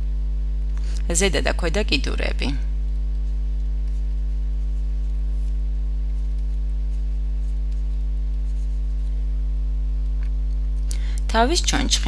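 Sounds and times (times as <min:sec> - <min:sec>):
electrical mains hum: 0:00.0 - 0:12.0
stylus scratching on drawing tablet: 0:03.2 - 0:09.3.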